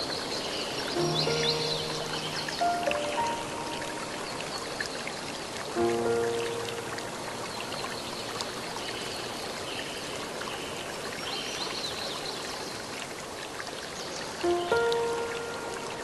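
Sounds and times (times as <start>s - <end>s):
stream rushing: 0.0s - 16.0s
soft held chord: 1.0s - 8.8s, 14.4s - 16.0s.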